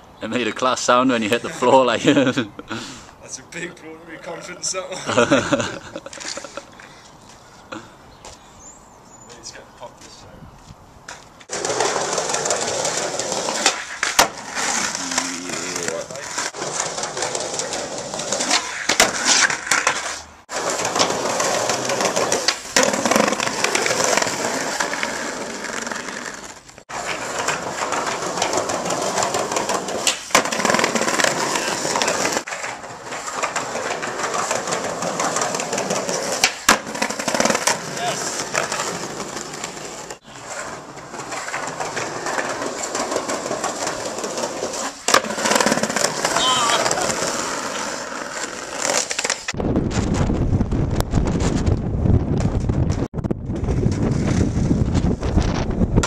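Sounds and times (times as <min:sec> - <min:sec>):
skateboard wheels rolling on paving: 0:00.3 - 0:56.0
skateboard clacks: 0:11.1 - 0:40.1.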